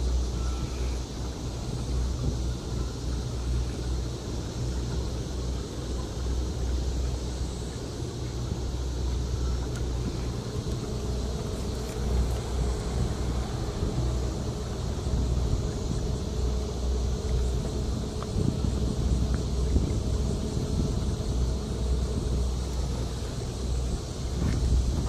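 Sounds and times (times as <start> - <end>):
faint high hiss: 0.0 - 24.9
wind buffeting microphone: 0.0 - 25.0.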